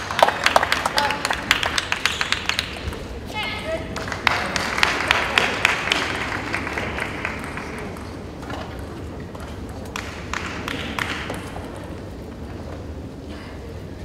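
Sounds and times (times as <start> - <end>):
arena applause: 0.0 - 2.8, 3.6 - 8.2.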